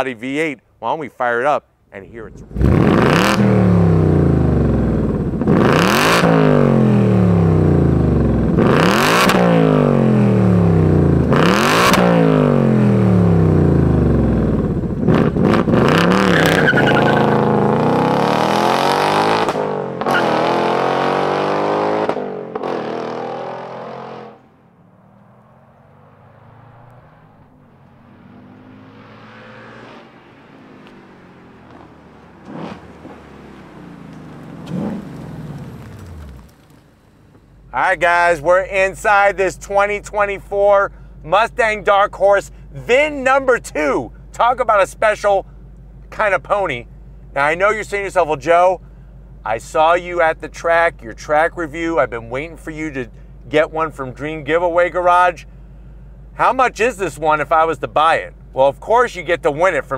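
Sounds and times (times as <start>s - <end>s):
car engine revving: 2.3s - 39.9s
exhaust pops: 30.6s - 37.8s.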